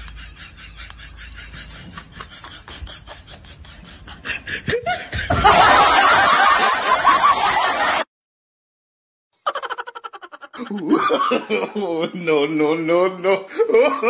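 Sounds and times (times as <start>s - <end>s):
loud hearty laughter: 0.0s - 8.0s, 9.4s - 14.0s
person snickering: 9.5s - 12.4s, 13.2s - 14.0s.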